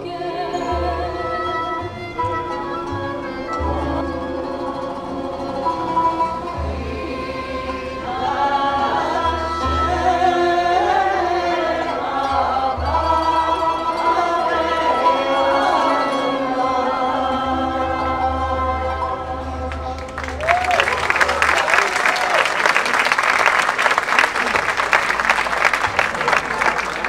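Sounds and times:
choir singing a hymn: 0:00.0 - 0:20.4
instrumental accompaniment: 0:00.0 - 0:21.1.

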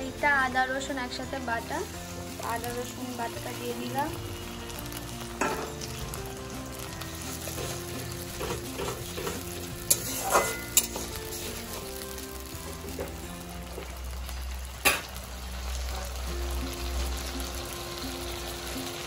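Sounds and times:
onions sizzling in hot oil: 0:00.0 - 0:19.0
metal spatula scraping pan: 0:07.5 - 0:12.0.

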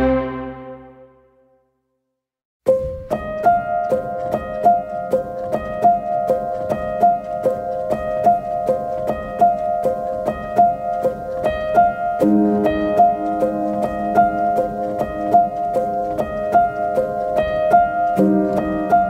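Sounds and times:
piano repeating short notes: 0:00.0 - 0:01.5, 0:02.7 - 0:19.0.

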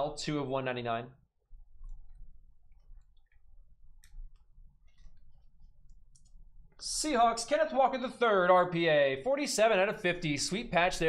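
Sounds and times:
low steady hum: 0:01.4 - 0:08.2.

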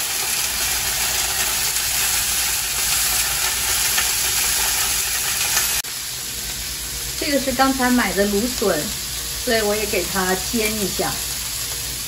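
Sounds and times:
fish sizzling in frying pan: 0:00.0 - 0:12.0.

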